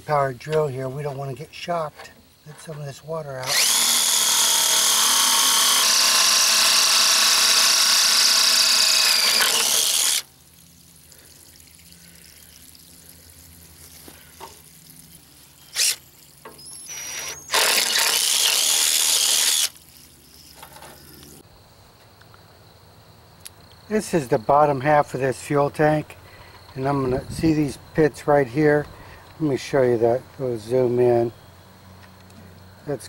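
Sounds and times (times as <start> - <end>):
cordless drill boring through metal: 3.4 - 10.3, 15.8 - 16.0, 16.9 - 19.8.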